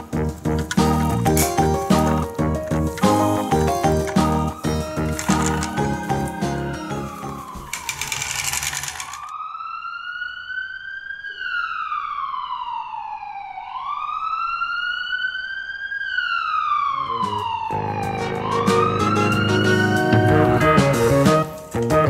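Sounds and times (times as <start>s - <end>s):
children's music: 0.0s - 8.3s, 17.0s - 22.0s
siren wailing: 3.0s - 8.2s, 9.1s - 20.8s.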